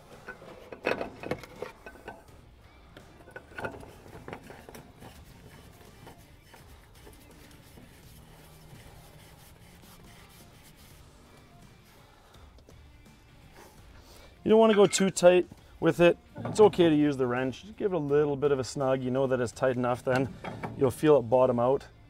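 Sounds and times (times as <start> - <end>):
oil filter rubbing and scraping: 0.0 - 12.1, 13.4 - 21.6
faint handling sounds: 0.0 - 12.8.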